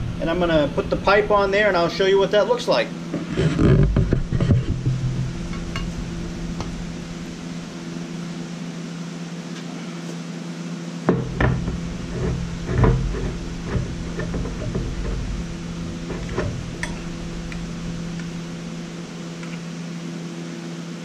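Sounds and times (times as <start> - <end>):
steady low hum: 0.0 - 21.0
metal pipe knocking and clanking: 3.8 - 6.0, 11.1 - 19.6.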